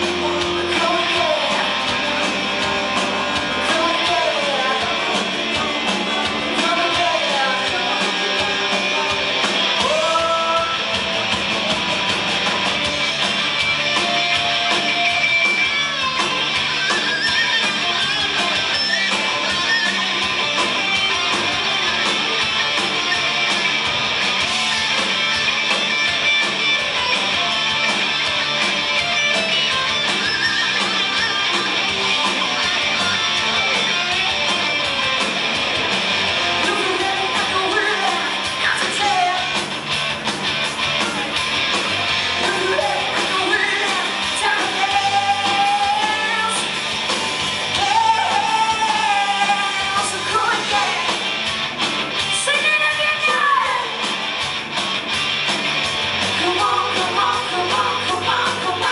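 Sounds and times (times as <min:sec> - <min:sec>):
live hard rock band: 0:00.0 - 0:58.9
woman singing: 0:42.4 - 0:46.8, 0:47.8 - 0:51.1, 0:56.4 - 0:58.9.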